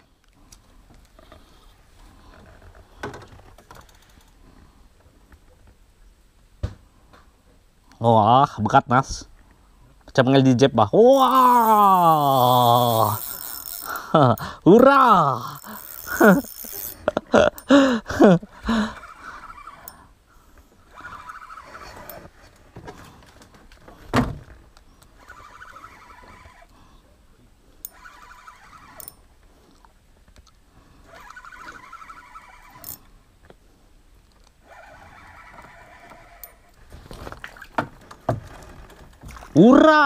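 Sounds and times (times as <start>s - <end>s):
fishing reel gears whirring: 11.2s - 14.2s, 15.0s - 17.7s, 18.7s - 20.1s, 20.8s - 22.3s, 25.1s - 26.7s, 27.8s - 29.2s, 31.1s - 33.1s, 34.6s - 36.8s.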